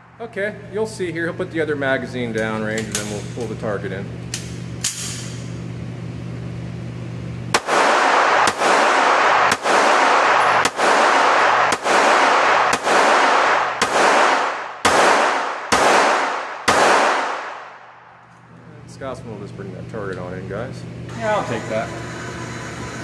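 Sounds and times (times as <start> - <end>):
steady low hum: 0.0 - 23.0
pistol shots echoing indoors: 7.5 - 18.2.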